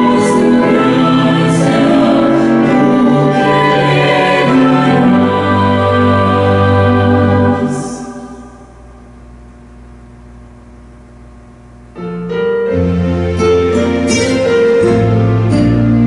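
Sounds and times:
hymn music on keyboard: 0.0 - 9.2.

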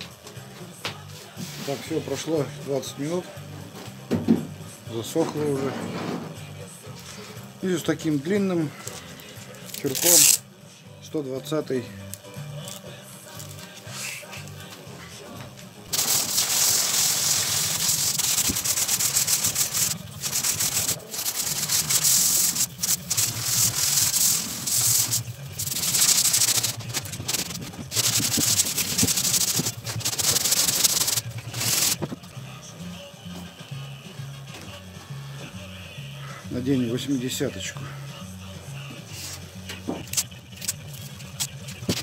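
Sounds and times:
scratchy hand sanding: 16.0 - 32.0.

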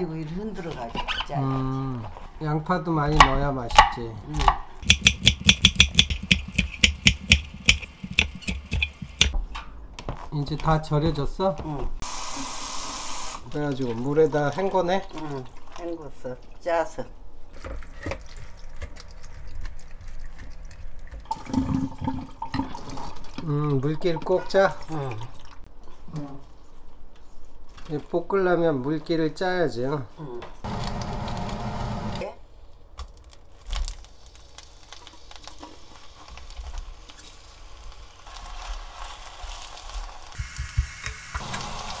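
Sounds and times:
water splashing and draining: 18.1 - 25.6.

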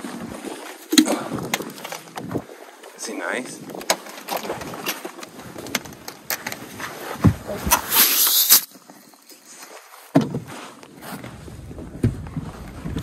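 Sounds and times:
rustling hiss: 7.6 - 9.2.

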